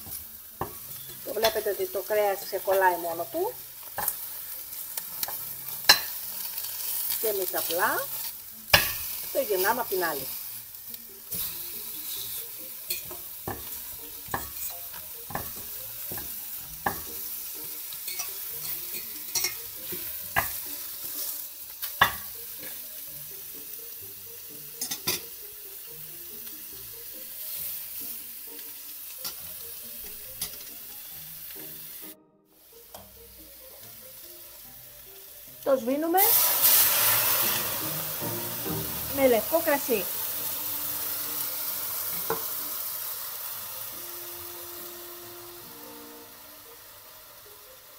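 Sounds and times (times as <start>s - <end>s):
meat sizzling in a pot: 0.0s - 47.9s.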